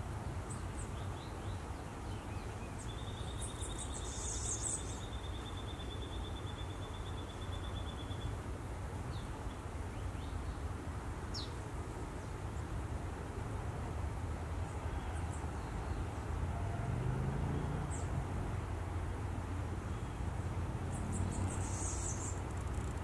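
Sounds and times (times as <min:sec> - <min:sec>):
small birds chirping: 0:00.5 - 0:08.4, 0:19.9 - 0:23.0.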